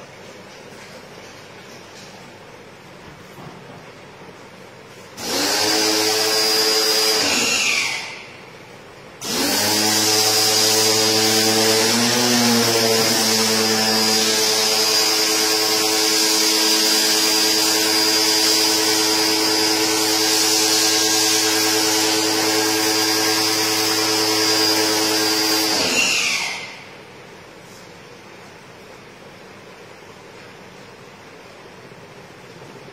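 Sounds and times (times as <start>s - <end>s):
pressure washer motor hum: 5.2s - 27.2s.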